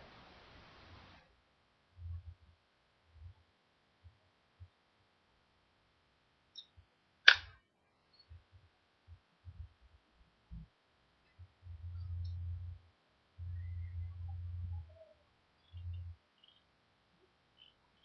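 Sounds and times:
spinning reel low rumble: 8.2 - 16.6.

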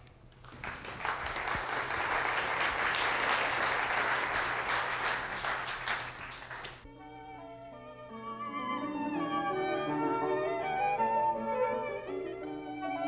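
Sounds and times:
audience applauding: 0.3 - 6.9.

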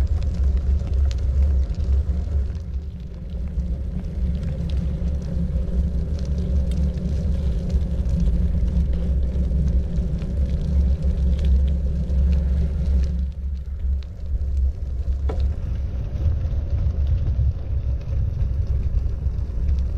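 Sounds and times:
faint clicks and rattles: 0.0 - 19.9.

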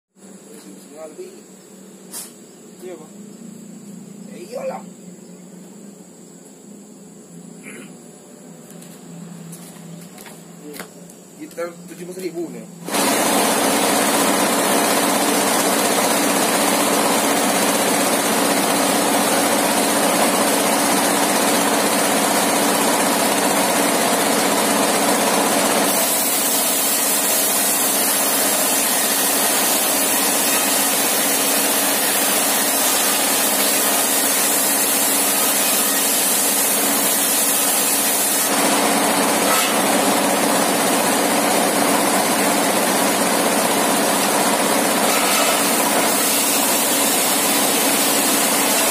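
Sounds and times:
circular saw ripping timber: 12.9 - 48.9.

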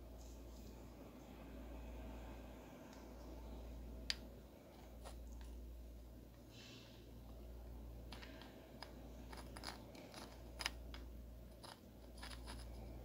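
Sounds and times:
steady low hum: 0.0 - 13.0
stone clicking and scratching: 8.1 - 13.0.

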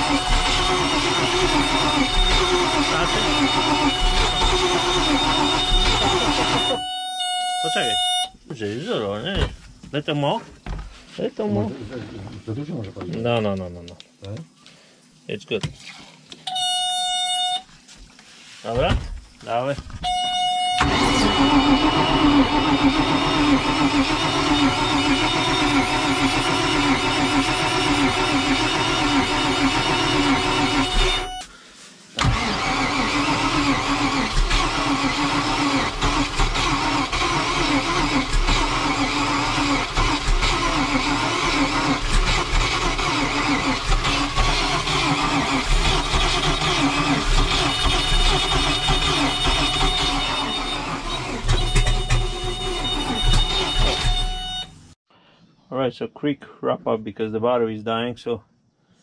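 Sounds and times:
boat engine cranking: 0.0 - 6.9, 20.8 - 31.4, 32.2 - 54.7.

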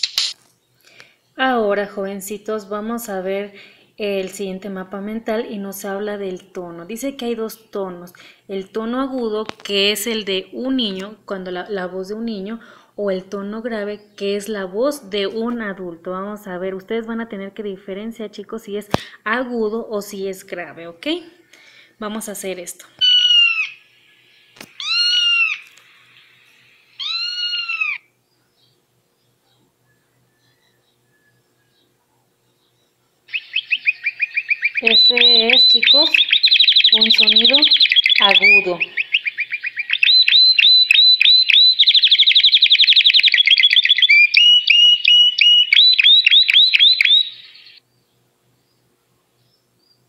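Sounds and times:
sharp click: 0.0 - 0.5
recorded bird song from phone: 0.0 - 2.9, 13.1 - 15.6, 23.0 - 50.0
cat meowing high-pitched: 24.8 - 25.6, 27.0 - 28.0.

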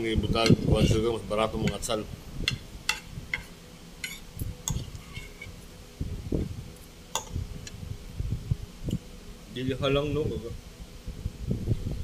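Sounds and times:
cutlery scraping ceramic plate: 2.5 - 5.6.

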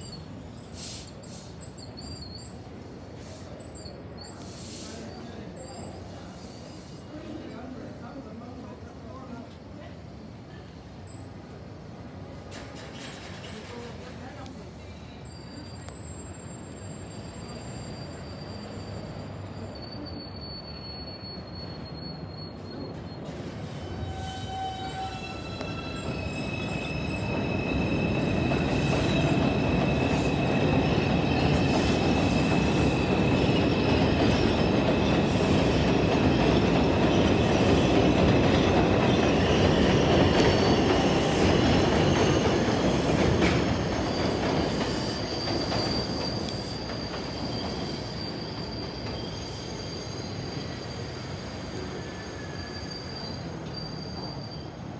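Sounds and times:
high-pitched wheel squeal: 15.2 - 35.7, 39.2 - 54.9
train wheels rumbling: 22.7 - 54.9.

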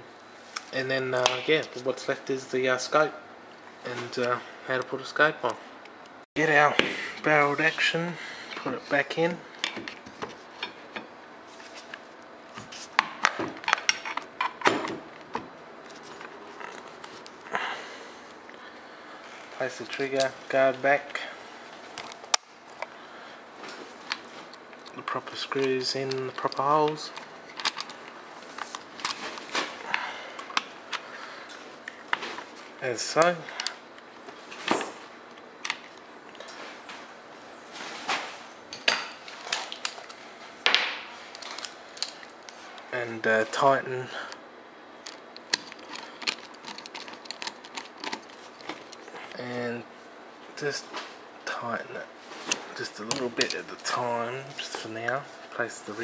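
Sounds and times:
rifle parts clicking and knocking: 45.1 - 49.0.

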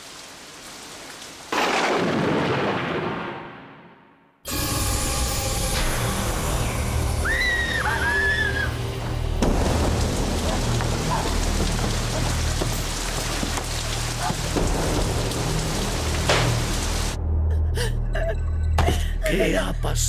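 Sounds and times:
heavy rain falling: 0.0 - 3.2, 7.3 - 17.2.

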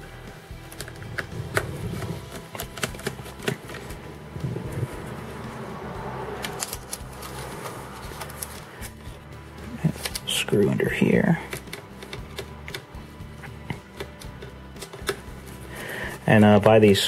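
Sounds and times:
handling sounds: 0.6 - 17.0.

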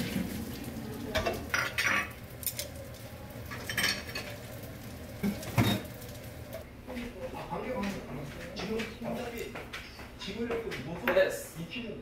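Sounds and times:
utensils clinking and scraping pans: 0.0 - 4.6, 5.2 - 6.6.

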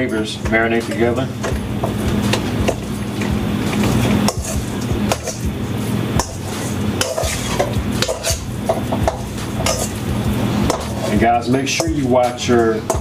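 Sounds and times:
spoon scraping wet meat: 1.8 - 5.5, 6.1 - 13.0
spoon clinking metal bowl: 7.0 - 10.0.

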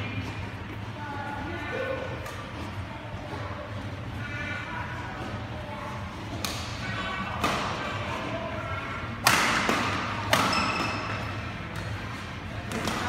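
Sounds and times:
racket hitting shuttlecock: 9.2 - 11.2.

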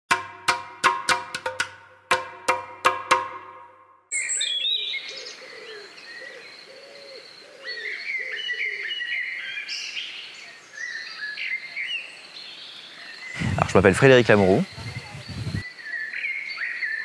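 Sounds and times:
lower bird call: 4.1 - 9.9, 13.0 - 17.0
birds chirping: 4.1 - 17.0.

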